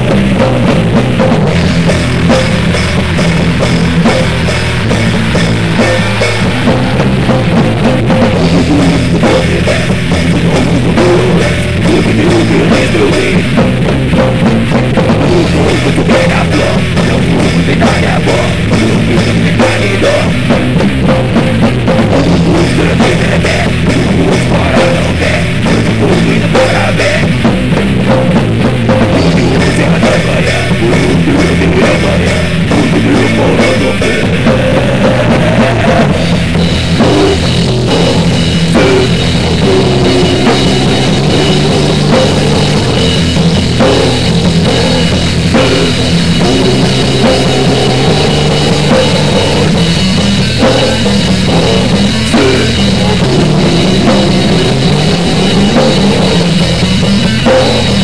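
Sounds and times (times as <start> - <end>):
cymbals: 0.0 - 14.0, 29.1 - 58.0
drum kit playing hard: 0.0 - 58.0
heavy rock music: 0.0 - 58.0.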